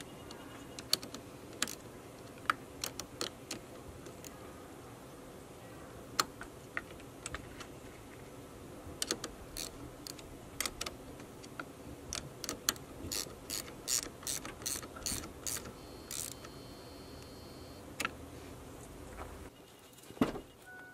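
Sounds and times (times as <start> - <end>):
socket ratchet clicking: 0.8 - 1.8, 9.0 - 11.0, 12.1 - 16.5.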